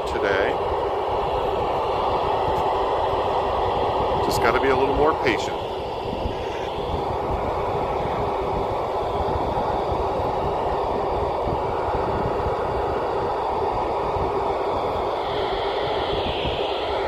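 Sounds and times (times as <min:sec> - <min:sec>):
radio static hiss: 0:00.0 - 0:09.1
wind buffeting microphone: 0:00.0 - 0:17.0.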